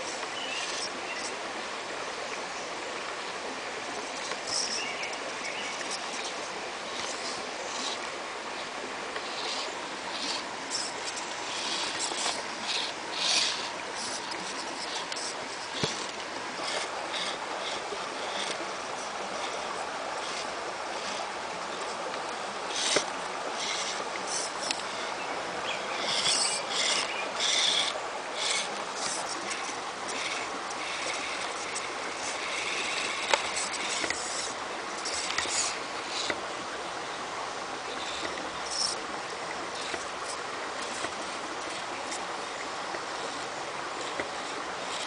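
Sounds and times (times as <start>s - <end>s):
rocky creek rushing: 0.0s - 45.0s.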